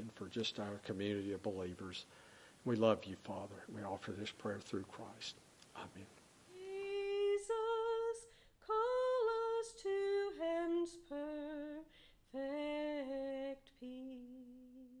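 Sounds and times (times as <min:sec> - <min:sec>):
breaths: 0:02.0 - 0:02.7, 0:08.2 - 0:08.6, 0:11.9 - 0:12.2
person humming a slow melody: 0:12.4 - 0:15.0.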